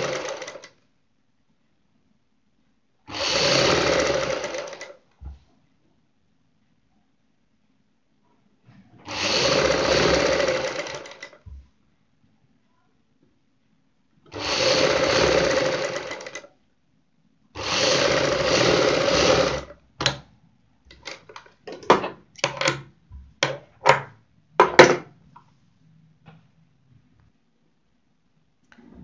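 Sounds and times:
sewing machine stitching: 0.0 - 0.8, 3.1 - 5.0, 9.0 - 11.4, 14.3 - 16.5, 17.6 - 20.2.

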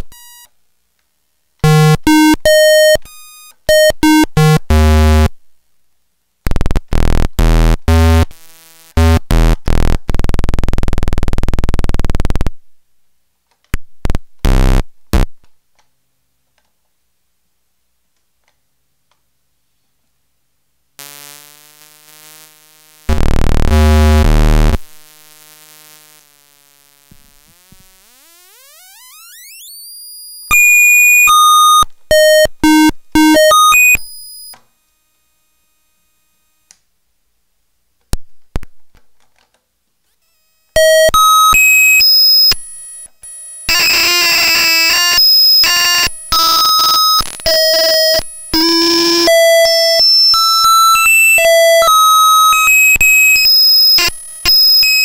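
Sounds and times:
low electronic buzz: 4.0 - 5.3, 6.5 - 12.6, 21.0 - 36.7
fast electronic beeps: 27.2 - 34.6, 40.8 - 55.0
tone sweeping upward: 27.4 - 31.8.

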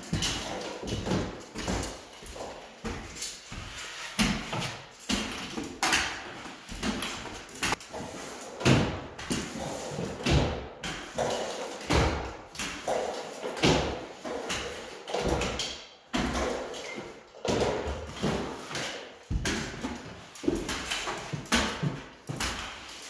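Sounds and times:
stilts knocking and thudding: 8.6 - 22.9.

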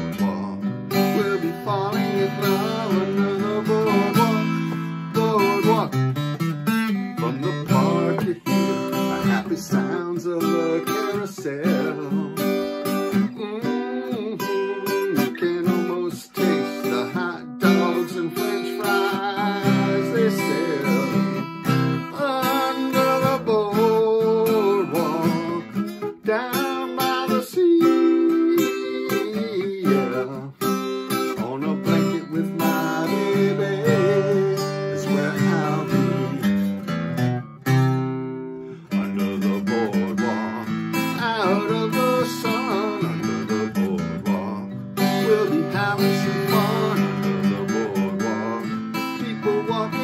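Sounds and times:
man singing: 0.0 - 37.3, 38.7 - 50.0
acoustic guitar strumming: 0.0 - 50.0.

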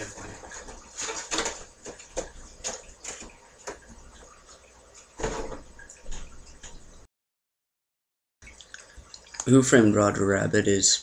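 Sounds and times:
objects clattering: 0.0 - 3.9, 5.2 - 6.8.

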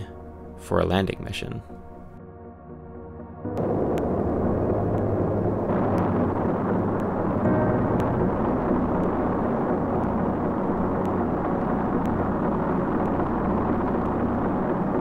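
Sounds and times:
deep rumble: 1.7 - 15.0
rocket engines roaring: 3.5 - 15.0.

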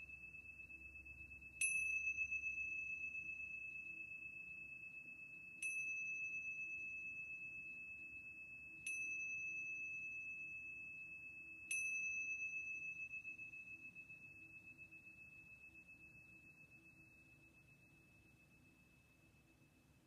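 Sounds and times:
small cymbals ringing: 0.0 - 19.9.

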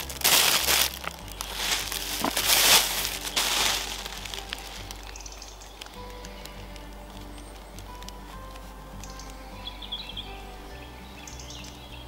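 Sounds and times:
plastic bag crinkling: 0.0 - 9.3
faint background music: 0.0 - 12.0.

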